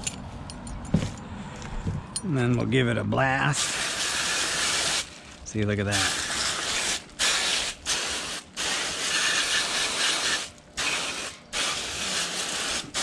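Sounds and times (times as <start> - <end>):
hose spray on plastic: 3.6 - 5.2, 5.9 - 13.0.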